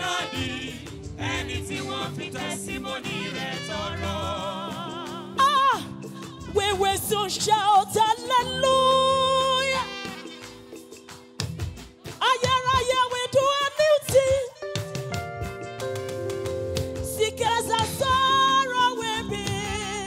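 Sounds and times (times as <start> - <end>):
instrumental chords: 0.0 - 7.5, 14.6 - 20.0
gospel choir singing: 0.0 - 8.7.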